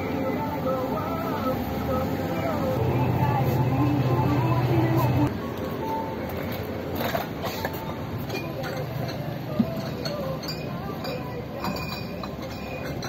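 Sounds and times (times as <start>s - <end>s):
dishes and utensils clinking: 7.0s - 13.0s.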